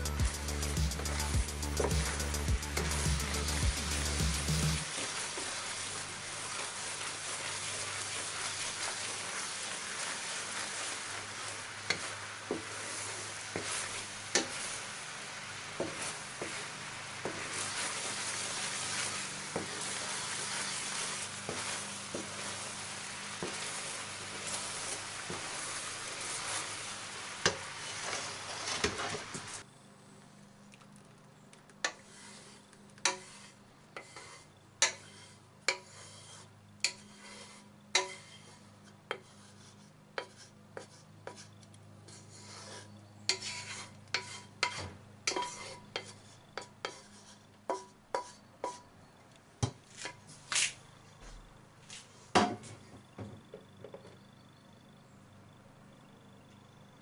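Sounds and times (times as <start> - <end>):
wooden spoon scraping a pan: 0.0 - 4.2, 6.4 - 29.6, 31.8 - 48.9
sauce sizzling in a frying pan: 0.0 - 29.6.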